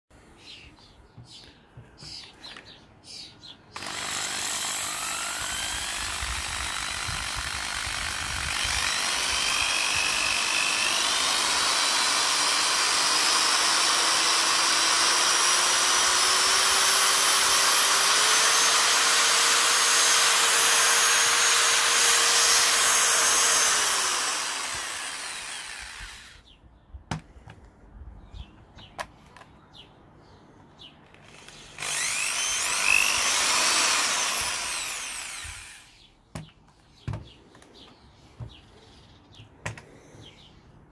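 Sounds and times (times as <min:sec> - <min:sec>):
drill clicks: 0:03.8 - 0:26.4, 0:31.0 - 0:37.7
electric drill motor whine: 0:03.8 - 0:26.4, 0:31.2 - 0:36.0.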